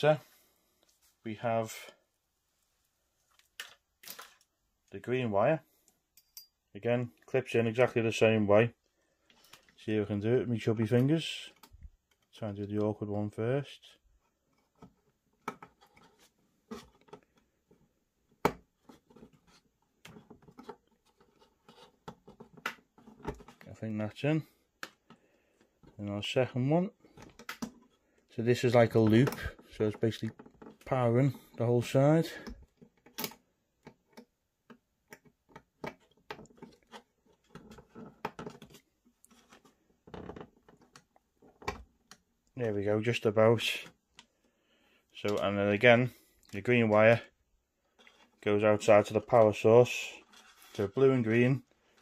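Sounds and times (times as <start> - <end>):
fingers handling wires: 14.2 - 23.8, 27.0 - 31.0, 32.3 - 42.6.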